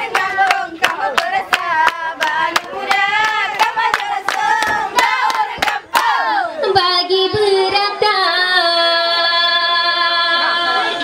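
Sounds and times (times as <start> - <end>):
rhythmic hand clapping: 0.0 - 6.4
group singing: 0.0 - 11.0.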